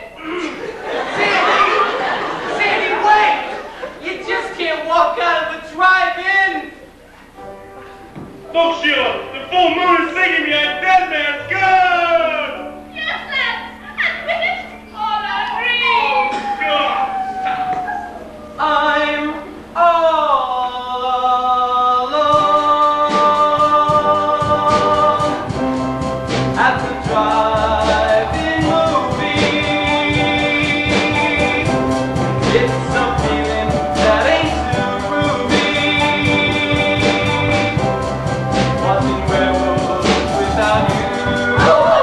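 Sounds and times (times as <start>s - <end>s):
instrumental backing: 0.0s - 42.0s
man singing ballad: 18.6s - 25.5s, 26.5s - 38.0s, 38.7s - 42.0s.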